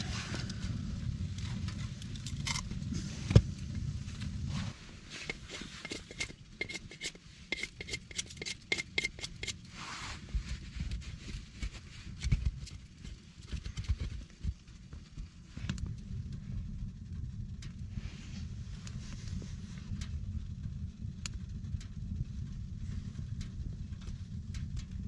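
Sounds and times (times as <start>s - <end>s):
knife scraping wood: 5.1s - 10.2s.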